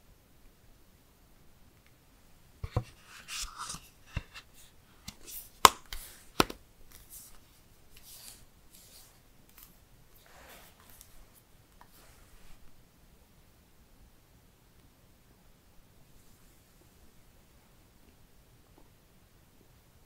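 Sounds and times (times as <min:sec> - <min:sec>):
phone case rubbing and scraping: 0:02.7 - 0:06.3, 0:10.2 - 0:11.2.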